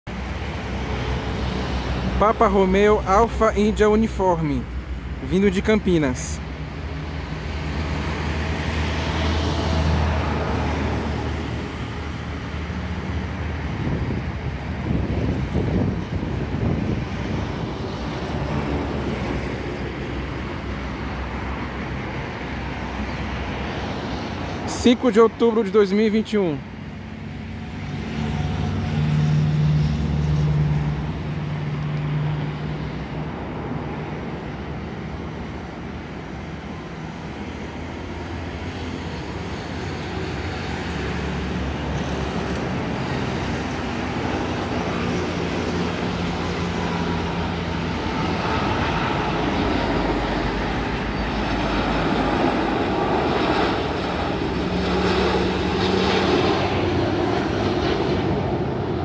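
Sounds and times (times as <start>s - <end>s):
traffic rumble: 0.1s - 59.0s
low engine hum: 26.6s - 59.0s.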